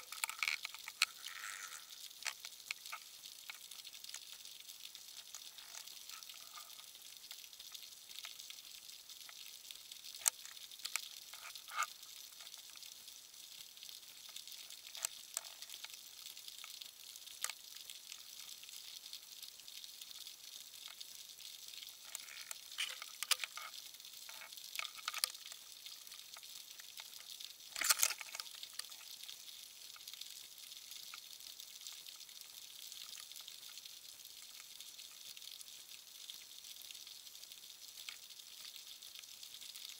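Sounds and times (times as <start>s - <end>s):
clicks and crackles: 0.0s - 7.5s, 9.2s - 12.8s, 14.1s - 16.0s, 17.4s - 18.2s, 21.8s - 29.3s, 38.0s - 38.3s.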